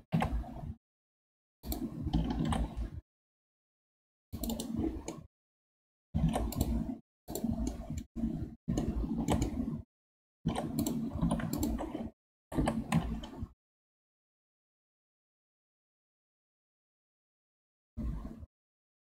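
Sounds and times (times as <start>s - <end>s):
mouse wheel scrolling: 0.1s - 0.8s, 1.6s - 3.0s, 4.4s - 5.3s, 6.2s - 9.9s, 10.5s - 13.5s, 18.0s - 18.4s.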